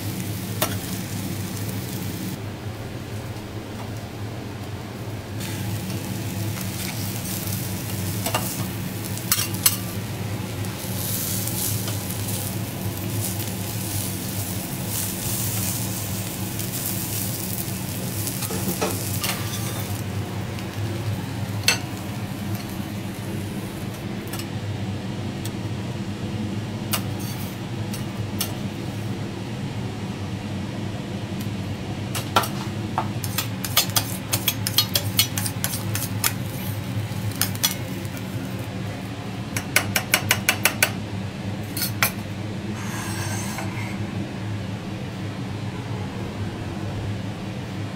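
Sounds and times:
shrimp sizzling on a griddle: 0:00.0 - 0:02.4, 0:05.4 - 0:24.4, 0:33.2 - 0:38.8
metal spatulas scraping: 0:18.4 - 0:19.9, 0:42.8 - 0:44.0.

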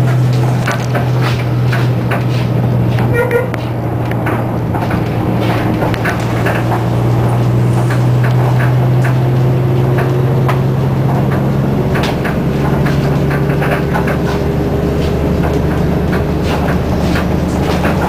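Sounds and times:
bus engine drone: 0:00.0 - 0:18.0
rattles and knocks from bus body: 0:00.0 - 0:18.0.

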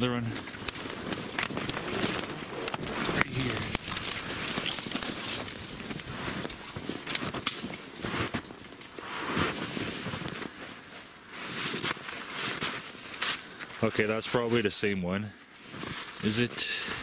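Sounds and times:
clothing rustling: 0:00.0 - 0:14.4, 0:15.6 - 0:17.0
footsteps crunching in snow: 0:00.0 - 0:17.0.

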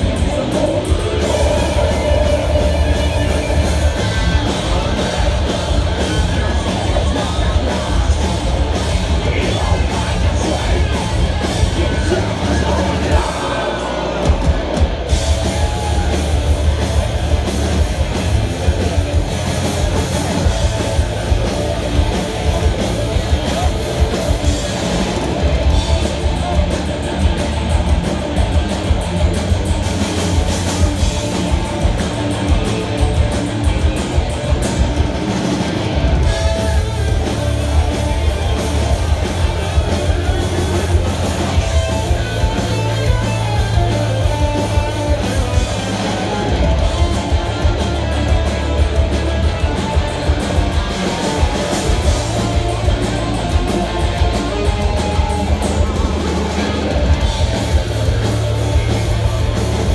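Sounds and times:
bass guitar: 0:00.0 - 0:59.9
distorted electric guitars: 0:00.0 - 0:59.9
drum kit: 0:00.0 - 0:59.9.

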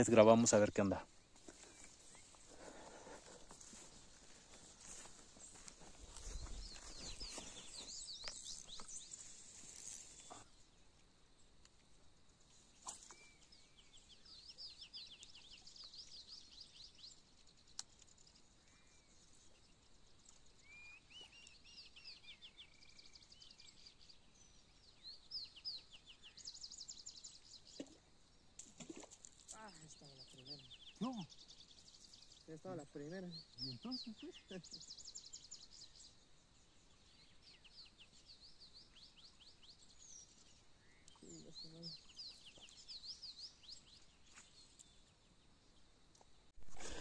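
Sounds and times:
birds chirping and trilling: 0:00.0 - 0:10.6, 0:28.8 - 0:45.8.

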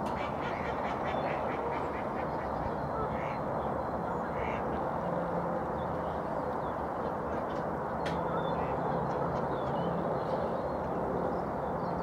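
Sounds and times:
ducks quacking: 0:00.1 - 0:03.4.

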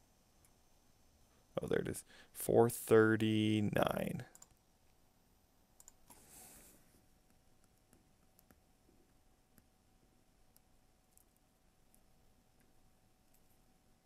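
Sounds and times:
stylus clicking on a screen: 0:04.3 - 0:04.6, 0:05.8 - 0:06.2, 0:07.3 - 0:08.6, 0:10.5 - 0:12.7.

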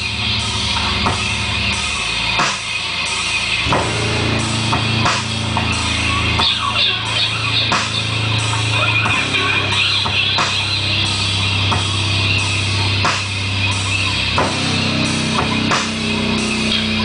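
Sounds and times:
electric bass low notes: 0:00.0 - 0:17.0
drum beat: 0:03.6 - 0:13.7, 0:14.3 - 0:17.0.

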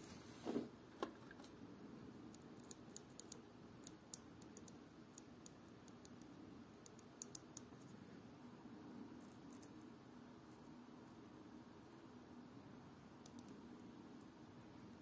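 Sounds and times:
low room hum: 0:00.0 - 0:15.0
tiny metal tool clicks: 0:06.8 - 0:07.7.

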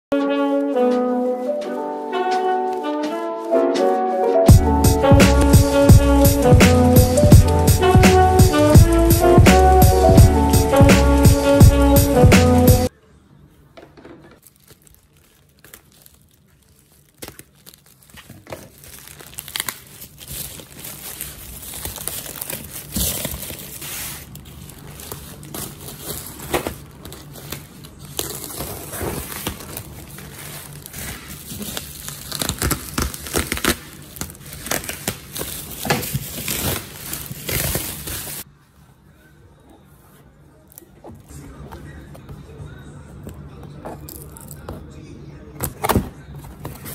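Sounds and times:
plastic packaging crinkling: 0:14.4 - 0:38.4.

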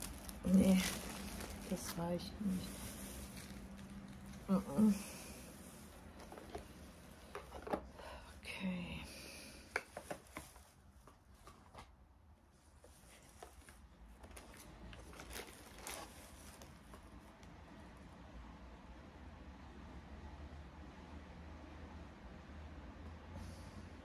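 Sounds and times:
packaging crinkling: 0:00.0 - 0:04.6, 0:13.1 - 0:17.4.

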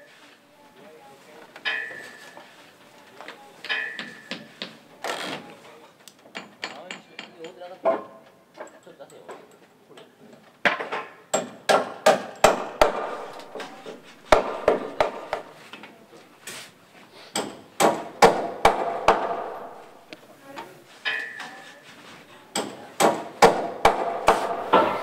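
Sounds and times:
hammer striking timber: 0:10.6 - 0:15.5, 0:17.3 - 0:20.0, 0:22.5 - 0:25.0.

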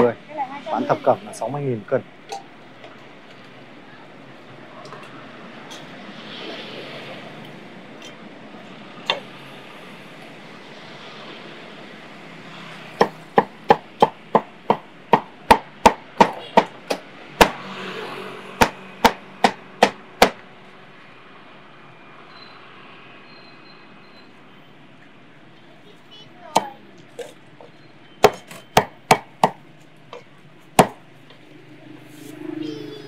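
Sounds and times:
cleaver chopping on wooden block: 0:13.0 - 0:17.6, 0:18.6 - 0:20.4, 0:28.2 - 0:31.0.

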